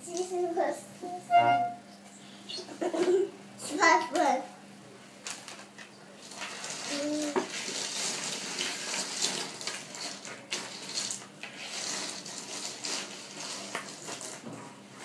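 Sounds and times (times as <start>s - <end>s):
plastic toys sliding on a table: 6.2s - 14.7s.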